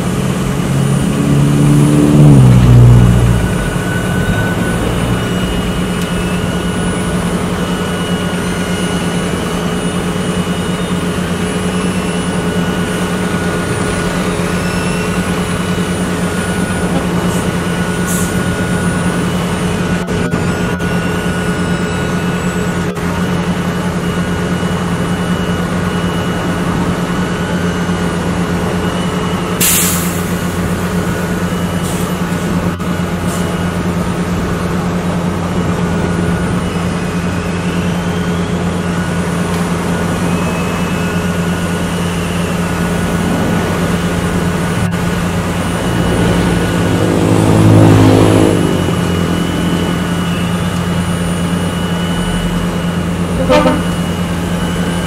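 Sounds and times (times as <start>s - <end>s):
heavy diesel engine running: 0.0s - 55.0s
loud pitched sound: 42.1s - 52.2s, 52.8s - 54.9s
brief toot: 53.3s - 54.1s.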